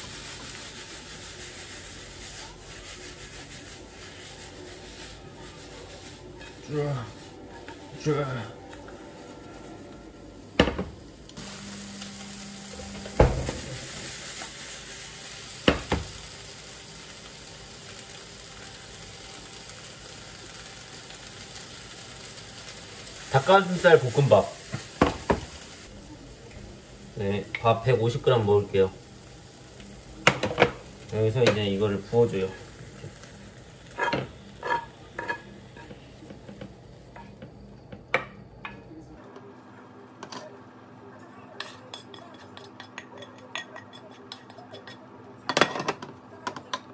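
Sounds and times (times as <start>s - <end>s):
food sizzling in a pan: 0.0s - 46.9s
spatula knocking and scraping pan: 6.4s - 6.7s, 24.7s - 25.5s, 33.9s - 38.8s.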